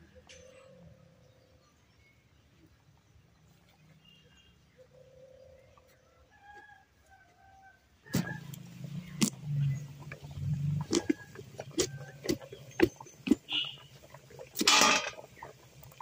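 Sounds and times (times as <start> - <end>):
faint bird calls: 7.4 - 14.6.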